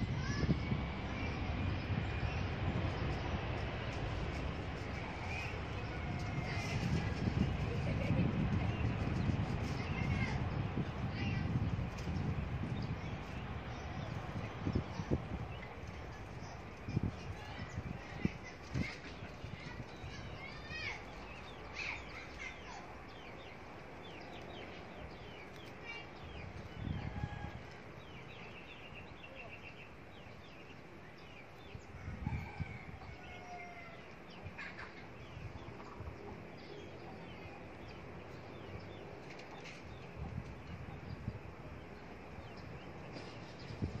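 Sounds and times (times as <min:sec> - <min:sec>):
wind thumps on microphone: 0:00.0 - 0:20.5, 0:43.1 - 0:44.0
birds chirping: 0:00.0 - 0:44.0.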